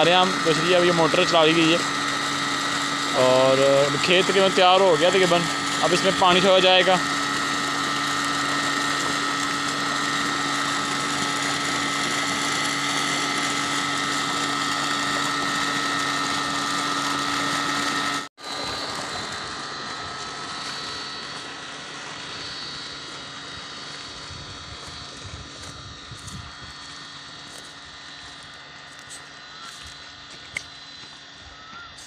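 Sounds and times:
pump motor running: 0.0s - 32.0s.

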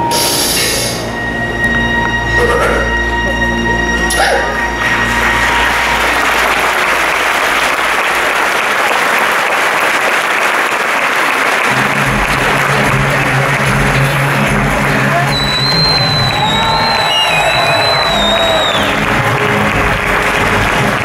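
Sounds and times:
low music chords: 0.0s - 7.2s, 11.7s - 21.0s
audience applauding: 4.3s - 21.0s.

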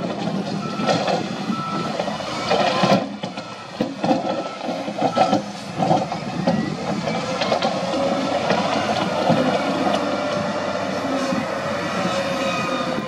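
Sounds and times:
diesel loader engine running: 0.0s - 13.0s.

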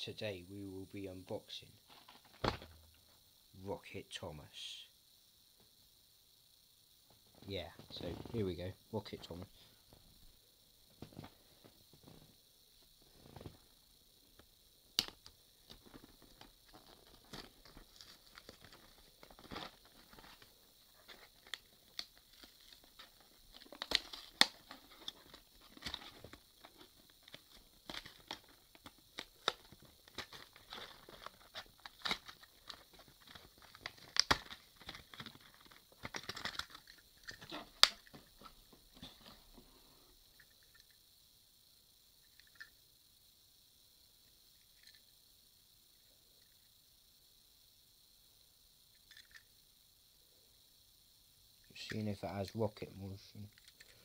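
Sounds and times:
sharp clicks and snaps: 14.4s - 16.5s, 27.2s - 38.1s
packaging crinkling and tearing: 15.8s - 20.5s, 21.1s - 38.0s.

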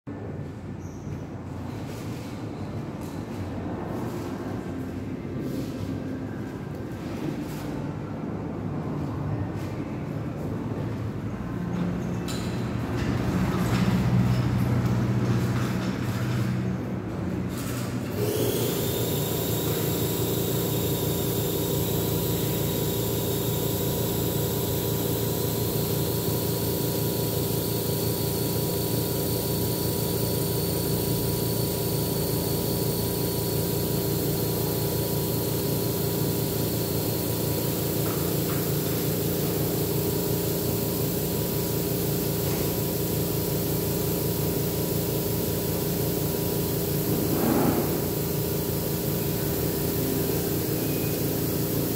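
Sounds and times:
air compressor running: 3.9s - 5.9s, 17.1s - 51.9s.

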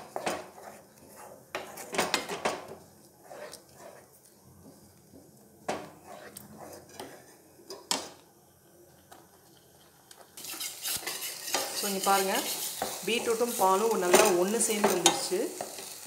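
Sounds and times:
spatula scraping a frying pan: 0.0s - 4.8s, 5.7s - 7.4s, 10.4s - 16.0s.

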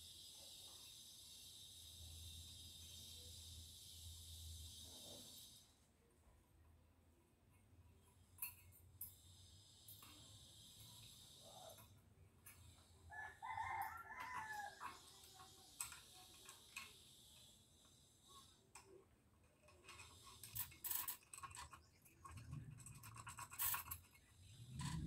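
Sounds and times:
metal parts clicking and rustling: 7.6s - 12.8s, 13.4s - 17.5s, 18.4s - 25.0s
rooster crowing: 13.1s - 15.0s.

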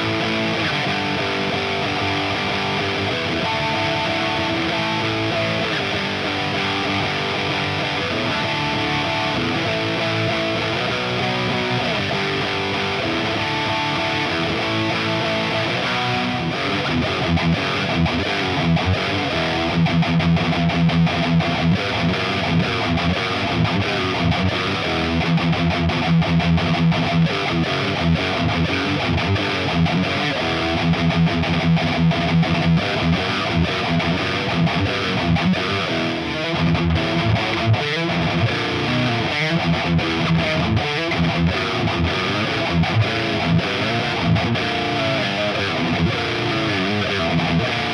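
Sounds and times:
distorted electric guitar riff: 0.0s - 47.9s.

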